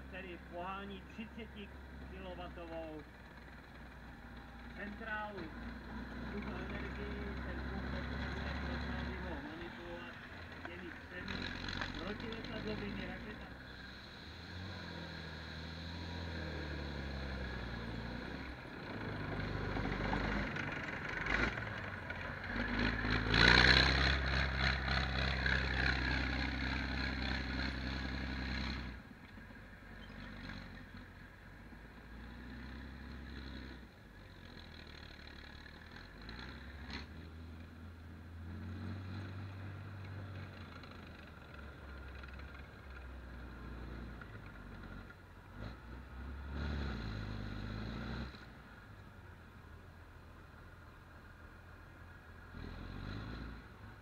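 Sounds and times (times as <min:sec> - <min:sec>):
tracked vehicle engine running: 0:00.0 - 0:54.0.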